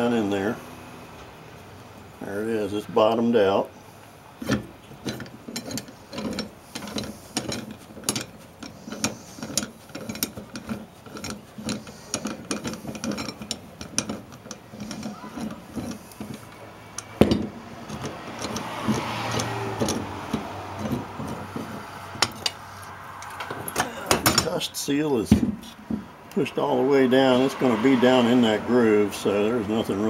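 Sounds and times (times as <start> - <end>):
clamp screw clicking and scraping: 4.4 - 24.5.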